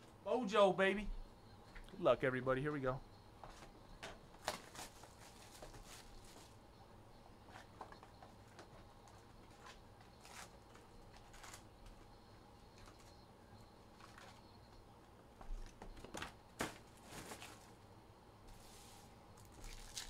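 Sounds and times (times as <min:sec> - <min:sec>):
card packs rustling: 0:04.4 - 0:06.6, 0:07.6 - 0:11.7, 0:15.6 - 0:17.8.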